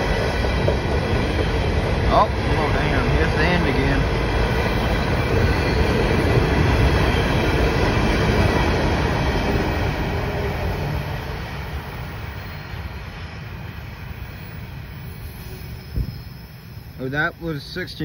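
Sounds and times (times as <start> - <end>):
freight train wheels rumbling: 0.0 - 18.0.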